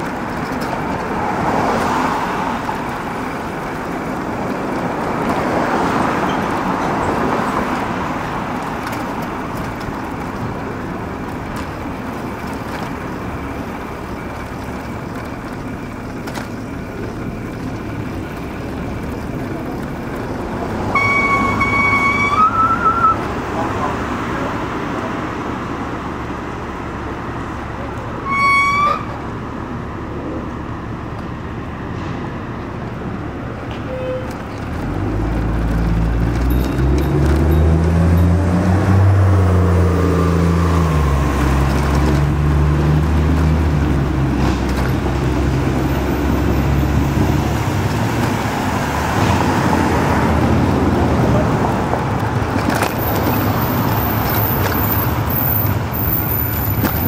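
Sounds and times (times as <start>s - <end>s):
road traffic passing: 0.0s - 57.0s
vehicle engine drone: 0.0s - 57.0s
high-pitched horn toot: 20.9s - 23.2s, 28.2s - 29.2s.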